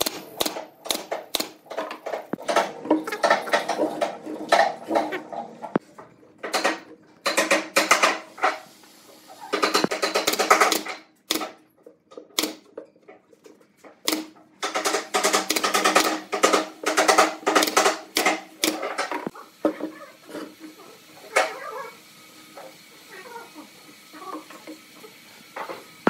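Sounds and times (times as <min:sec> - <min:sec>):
nail gun firing: 0:00.0 - 0:02.7, 0:09.7 - 0:11.6, 0:12.4 - 0:12.6, 0:14.1 - 0:18.9.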